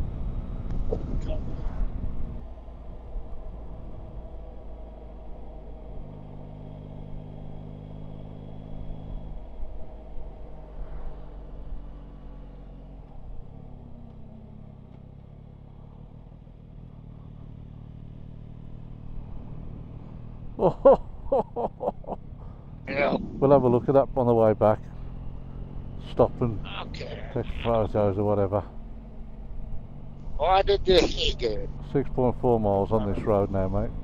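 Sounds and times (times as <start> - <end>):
motorcycle engine running: 11.2 - 34.0.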